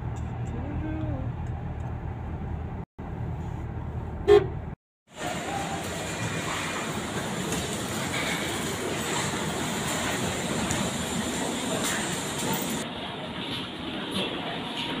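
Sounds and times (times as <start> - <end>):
car road noise: 0.0 - 6.3
car horn toot: 4.2 - 4.6.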